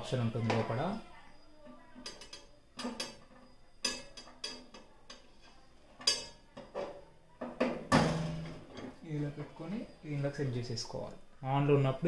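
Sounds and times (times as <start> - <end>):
metal spit clinking against oven: 1.7 - 7.1.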